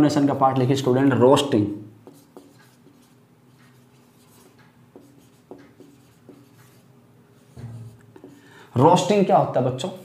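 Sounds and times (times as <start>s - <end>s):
marker scratching on whiteboard: 2.0s - 8.4s.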